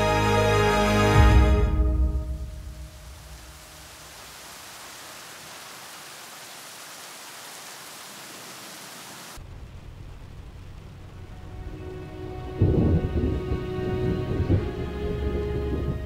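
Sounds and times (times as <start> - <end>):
heavy rain hissing: 0.0 - 16.0
low rumble: 9.4 - 16.0.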